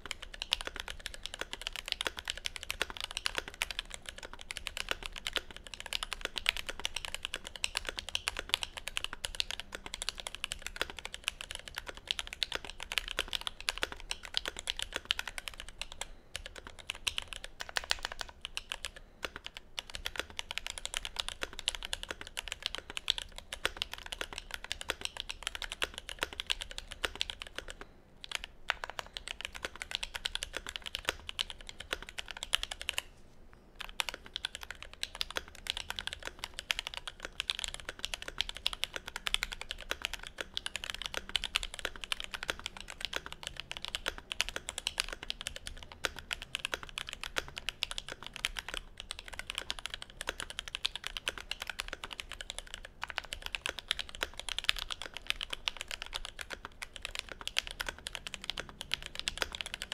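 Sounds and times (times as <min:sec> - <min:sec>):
fast mechanical keyboard typing: 0:00.0 - 0:33.0, 0:33.8 - 0:59.9.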